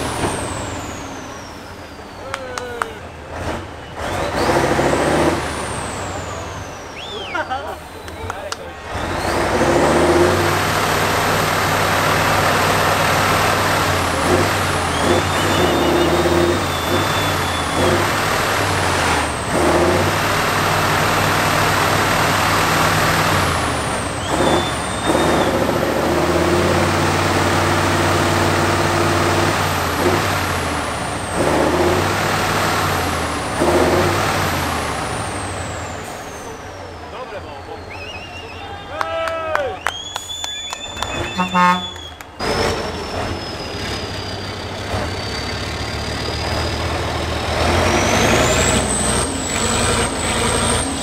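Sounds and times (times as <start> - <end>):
truck diesel engine revving: 0.0 - 38.6, 39.8 - 51.0
high whistle: 6.3 - 8.3, 14.8 - 18.0, 24.2 - 25.7, 37.5 - 44.6.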